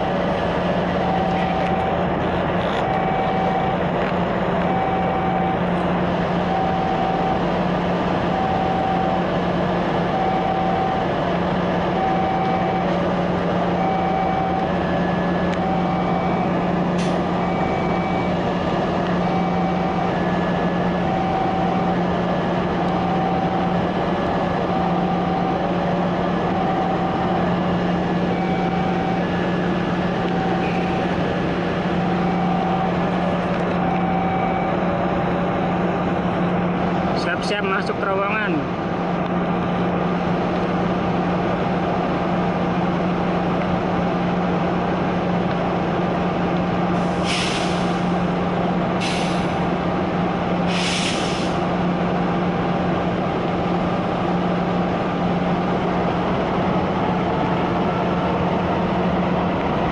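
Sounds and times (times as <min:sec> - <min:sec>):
level-crossing alarm beeping: 0:00.0 - 0:38.7, 0:46.8 - 0:52.9
locomotive engine running: 0:00.0 - 0:59.9.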